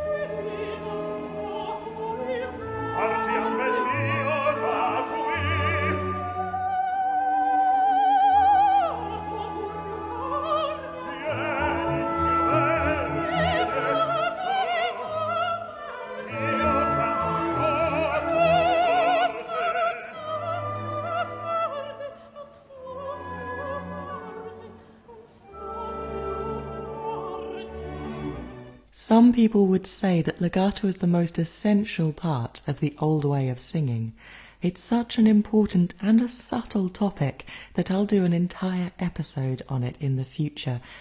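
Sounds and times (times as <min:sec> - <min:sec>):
woman singing opera: 0:00.0 - 0:28.4
symphony orchestra: 0:00.0 - 0:28.9.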